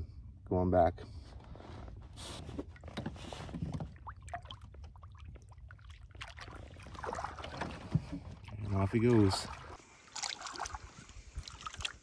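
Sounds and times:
water splashing and dripping: 3.8 - 12.0
water swirling: 4.0 - 12.0.

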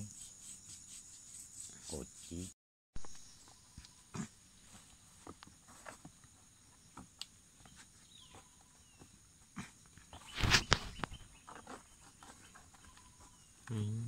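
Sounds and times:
hands rustling cord and bark: 7.0 - 13.6.

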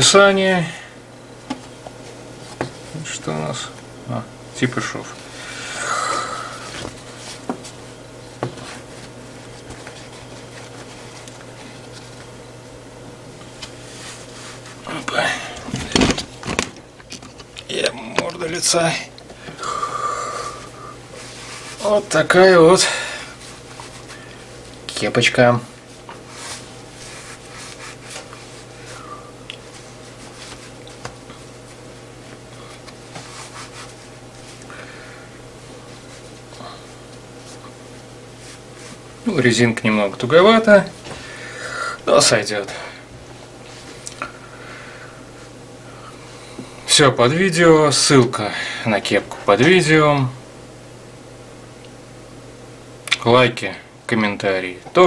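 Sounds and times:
steady low hum: 0.0 - 55.0
fabric cap rubbing on table: 26.1 - 28.9, 32.9 - 34.6.

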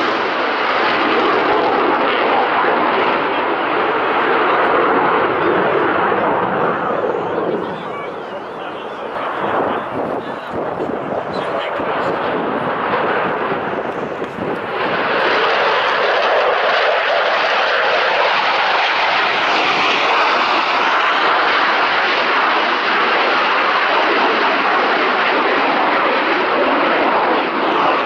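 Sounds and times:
fighter jet engine roar: 0.0 - 28.0.

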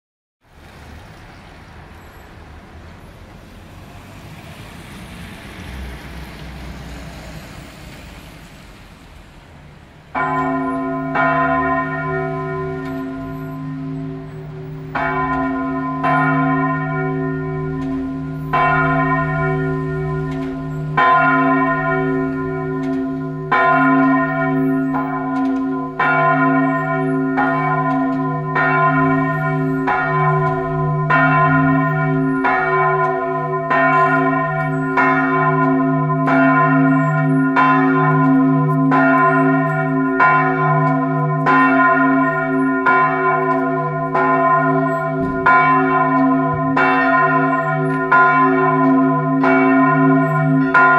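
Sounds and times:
church bell tolling: 10.1 - 50.9.

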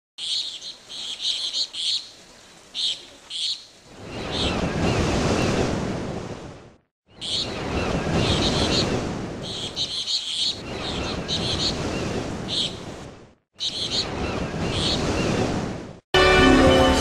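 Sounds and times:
birds chirping: 0.2 - 5.6, 7.1 - 13.0, 13.6 - 15.5
wave washing in: 3.8 - 17.0.

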